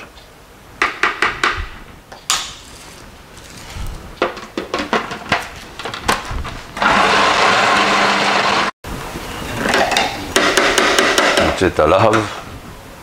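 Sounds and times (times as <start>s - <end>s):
food processor motor running: 6.8s - 8.7s.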